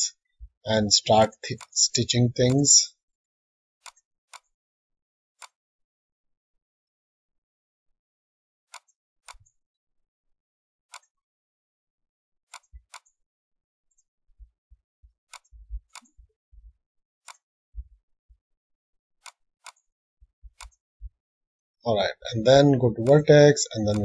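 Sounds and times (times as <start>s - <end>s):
computer mouse clicking: 19.2s - 19.9s, 20.5s - 20.8s.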